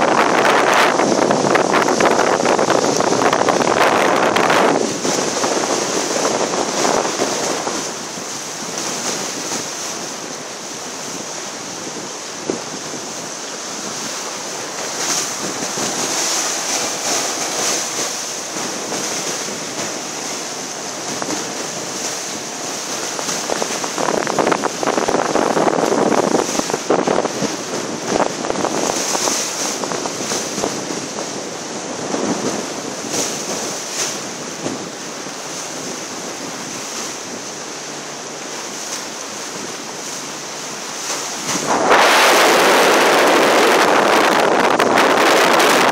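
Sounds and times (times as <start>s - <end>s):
rushing splashing water: 0.0s - 45.9s
wind buffeting microphone: 0.0s - 45.9s.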